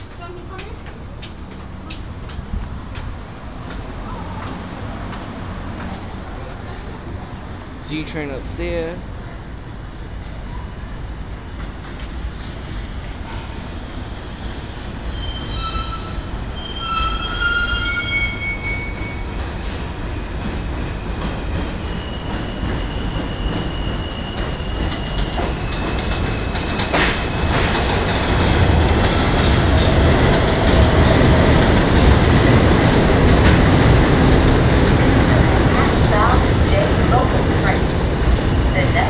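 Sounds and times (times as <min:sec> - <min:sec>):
train rumble: 0:00.0 - 0:14.2, 0:19.2 - 0:39.0
train high whine: 0:01.7 - 0:06.6
train wheels squealing: 0:14.1 - 0:19.8, 0:20.7 - 0:27.8.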